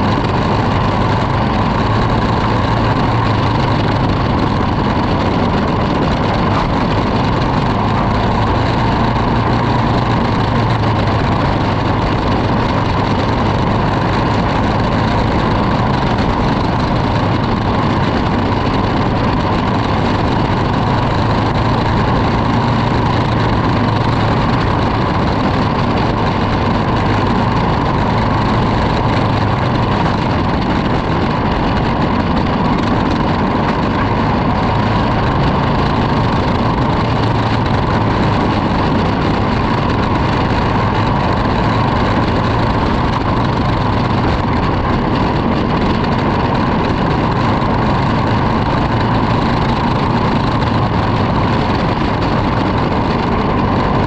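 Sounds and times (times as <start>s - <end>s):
kart engine running: 0.0s - 54.0s.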